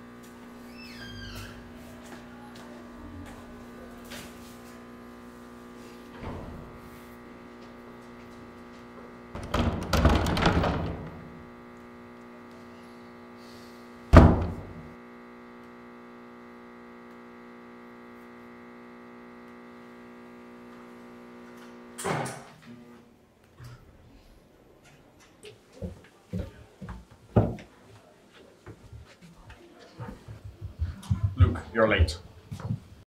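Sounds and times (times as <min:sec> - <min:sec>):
steady low hum: 0:00.0 - 0:22.0
door shutting with heavy thunk: 0:06.2 - 0:06.8, 0:09.4 - 0:11.4, 0:14.1 - 0:14.9
door clattering open: 0:09.4 - 0:11.4, 0:14.2 - 0:14.8.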